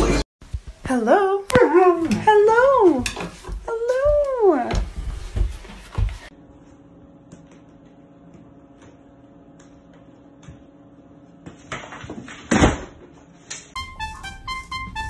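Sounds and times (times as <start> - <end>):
piano music: 13.8 - 15.0.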